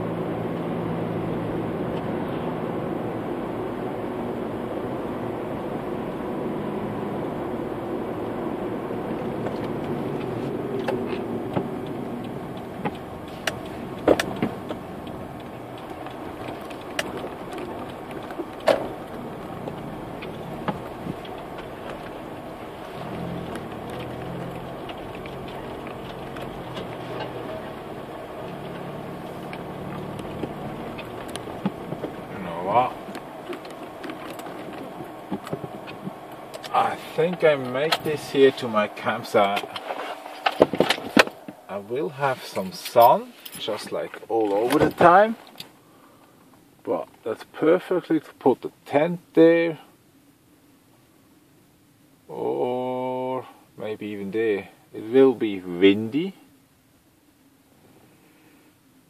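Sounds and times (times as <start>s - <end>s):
car engine and road noise: 0.0s - 59.0s
sharp clicks and knocks: 9.4s - 32.3s, 33.0s - 36.8s, 39.5s - 41.6s.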